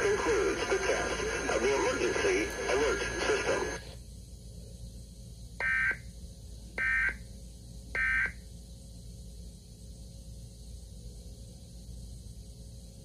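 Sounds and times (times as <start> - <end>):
television speech and music: 0.0 - 3.9.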